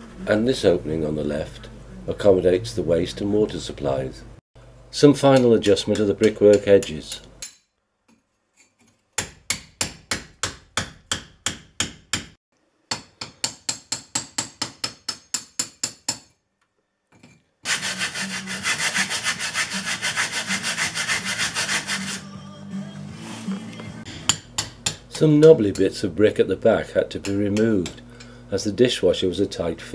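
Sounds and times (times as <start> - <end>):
hammer and chisel on brick: 5.3 - 7.6, 9.2 - 16.4.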